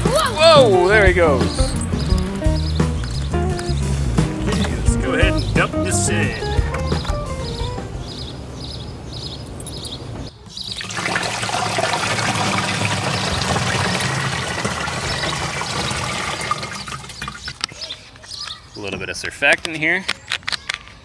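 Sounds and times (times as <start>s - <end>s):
liquid splashing into tank: 10.7s - 17.7s.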